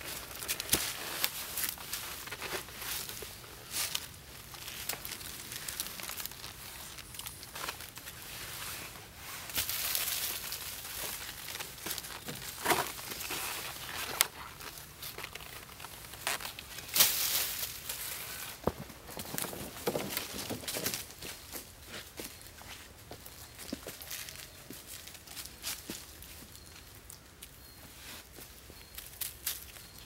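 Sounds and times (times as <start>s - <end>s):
shovel scraping and digging earth: 0.0s - 22.9s
dry leaves rustling: 0.0s - 30.0s.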